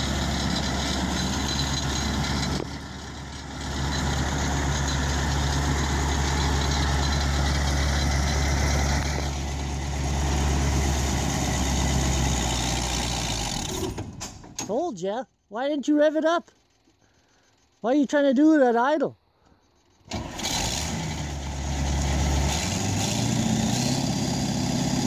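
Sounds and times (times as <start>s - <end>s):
diesel engine idling: 0.0s - 14.5s.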